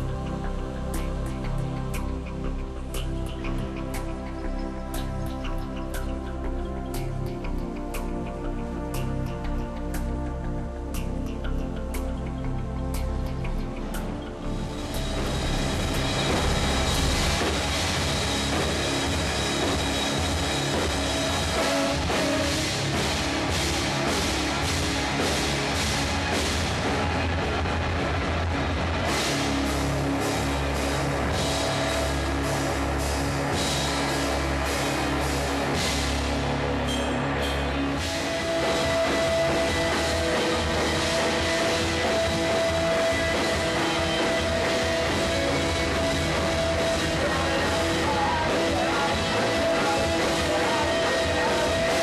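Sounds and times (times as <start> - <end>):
rock music with drums: 13.0 - 52.0.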